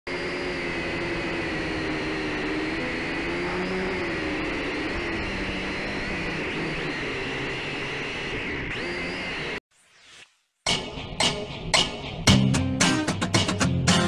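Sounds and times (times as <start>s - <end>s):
drone motors whining: 0.1s - 9.6s.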